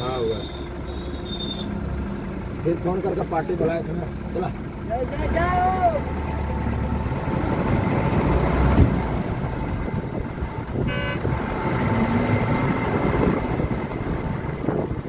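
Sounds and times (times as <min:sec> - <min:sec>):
car horn toot: 0:00.0 - 0:01.8, 0:10.8 - 0:11.3
vehicle engine and road rumble: 0:00.0 - 0:15.0.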